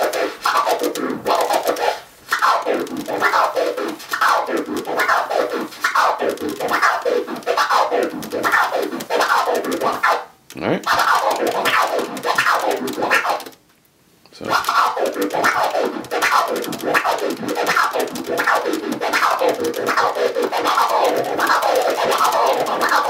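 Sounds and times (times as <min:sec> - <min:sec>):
turntable scratching: 0:00.0 - 0:13.6, 0:14.4 - 0:23.0
crossfader clicks: 0:06.2 - 0:13.6, 0:14.6 - 0:23.0.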